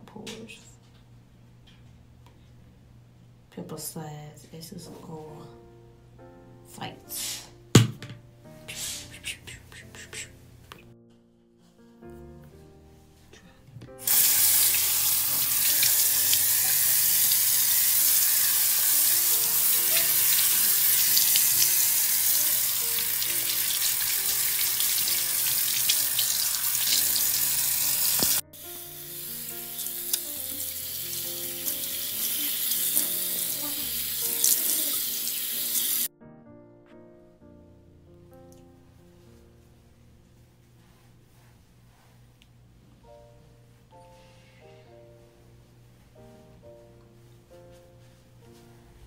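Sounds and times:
tap running into sink: 28.0 - 28.4.

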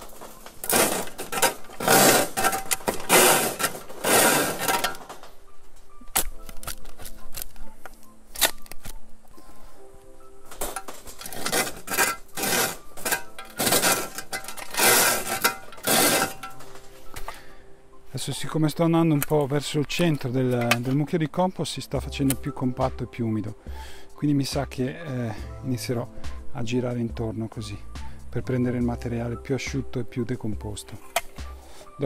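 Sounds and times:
spade scraping compost on sieve: 0.0 - 5.2, 10.5 - 17.2
spade knocking into compost: 0.6 - 5.2, 10.6 - 16.8.

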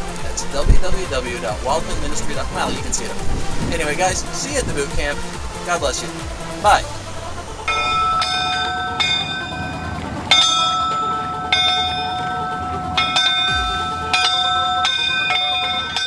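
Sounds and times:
bell-like chimes ringing: 7.7 - 16.0.

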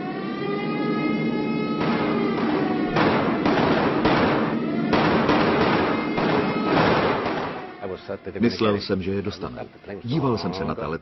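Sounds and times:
wailing siren: 0.0 - 8.4
rapid gunshots and blasts: 1.8 - 7.6.

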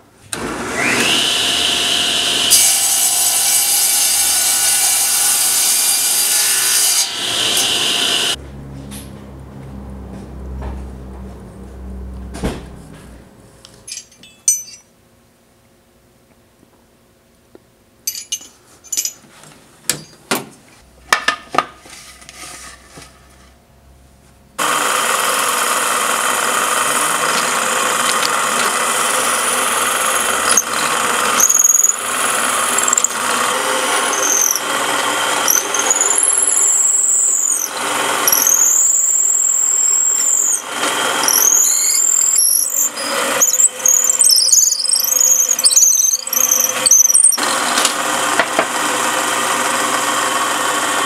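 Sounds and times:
drill press boring into wood: 0.4 - 6.1, 24.6 - 51.0
metal clinks of drill bits: 13.9 - 14.9, 18.1 - 19.2
high squeals of bit cutting wood: 26.8 - 47.6.

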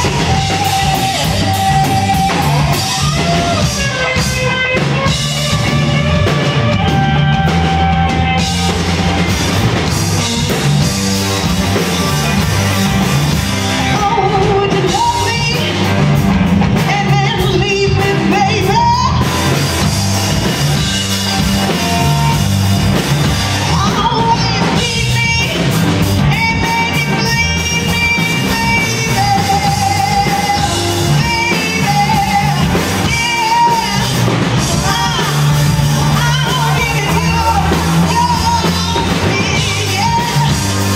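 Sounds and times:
woman singing: 0.0 - 5.8, 13.8 - 16.0, 16.7 - 19.6, 23.6 - 40.9
rock band playing: 0.0 - 40.9.

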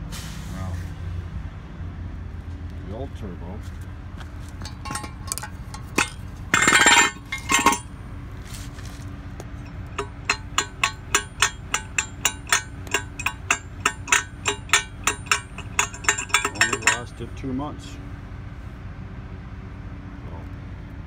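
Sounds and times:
turbocharger shaft clicking: 4.5 - 8.0, 9.4 - 17.2
metallic clatter of hand tools: 4.6 - 7.9, 9.6 - 17.2.

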